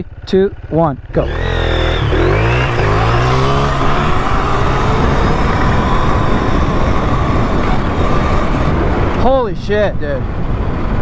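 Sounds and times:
electric motor whine: 1.1s - 9.3s
wind rush on microphone: 2.0s - 11.0s.

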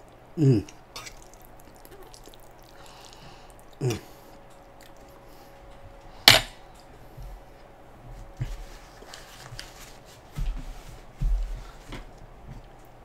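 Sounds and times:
chewing: 0.0s - 5.3s.

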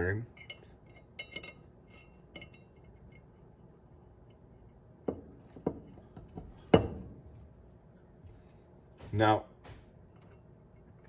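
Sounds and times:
faint metallic clink: 0.3s - 3.3s.

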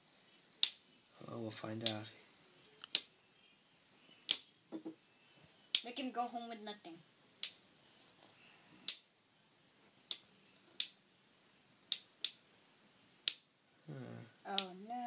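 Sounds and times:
person speaking: 13.9s - 15.0s.

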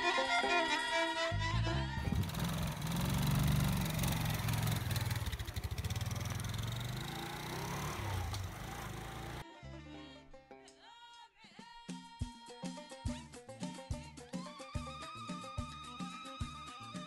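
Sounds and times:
motorcycle engine revving: 2.0s - 9.4s.

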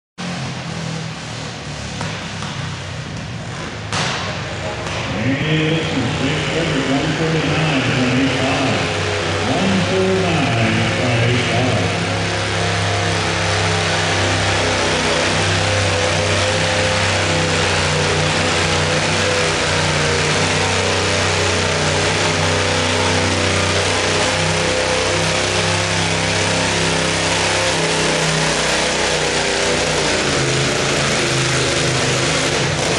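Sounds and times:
tractor engine running under load: 0.2s - 32.9s.

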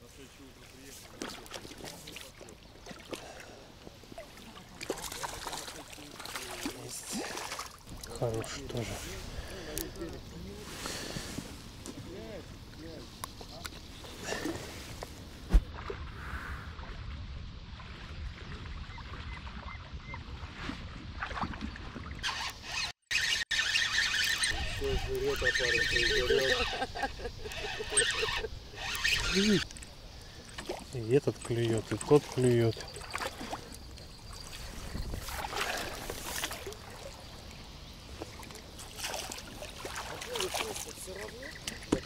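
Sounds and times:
small waves lapping: 0.0s - 42.0s
wind rumbling on microphone: 24.5s - 30.0s, 33.8s - 36.3s.

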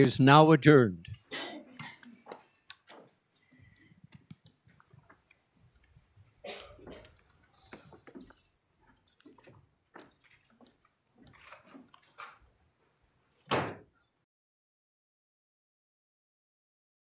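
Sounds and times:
people shuffling and footsteps: 1.1s - 12.4s.

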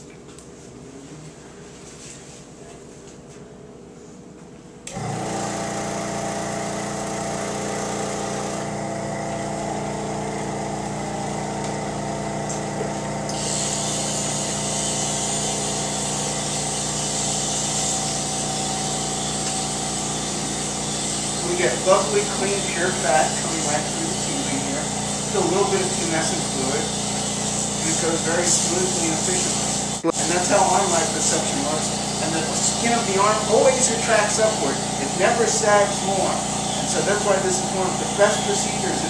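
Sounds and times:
steady mechanical buzz: 4.8s - 39.0s
suction hiss: 13.3s - 39.0s.

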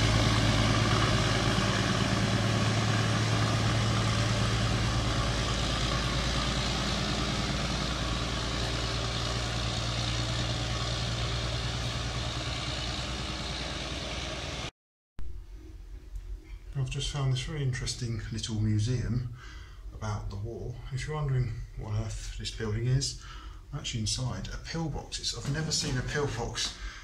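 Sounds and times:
diesel locomotive engine drone: 0.0s - 15.9s.

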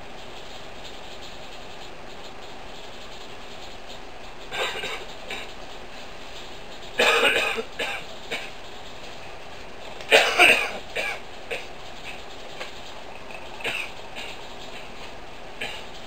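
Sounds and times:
person coughing: 4.5s - 5.5s, 7.0s - 8.5s, 10.1s - 11.7s, 13.6s - 14.3s.

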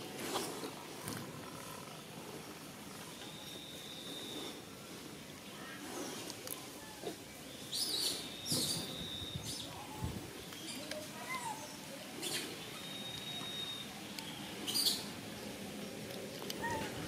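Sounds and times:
thin high whistle: 12.8s - 13.9s.

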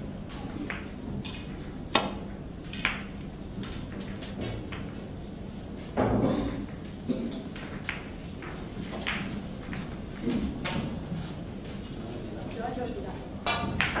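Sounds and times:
balls clacking together: 0.3s - 5.1s, 5.9s - 11.1s, 13.4s - 14.0s
cue striking ball click: 0.6s - 5.0s.

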